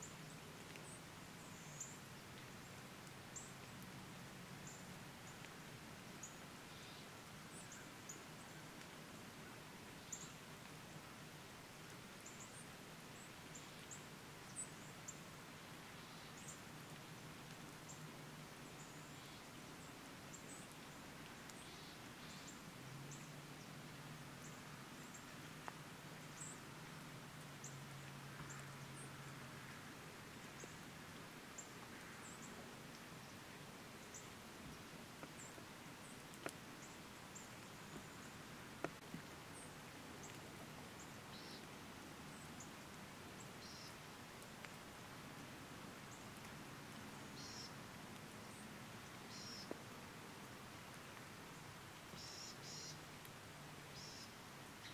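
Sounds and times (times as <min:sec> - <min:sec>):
soft hiss: 0:00.0 - 0:54.9
small birds chirping: 0:41.0 - 0:41.7, 0:43.4 - 0:44.0, 0:47.2 - 0:47.8, 0:48.4 - 0:49.8, 0:52.2 - 0:53.0, 0:53.9 - 0:54.9.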